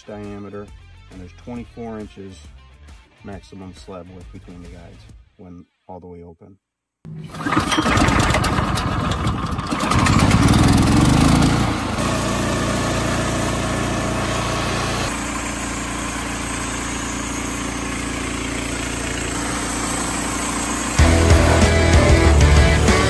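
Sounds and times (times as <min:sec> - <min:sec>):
gasoline engine running: 0:07.1 - 0:23.0.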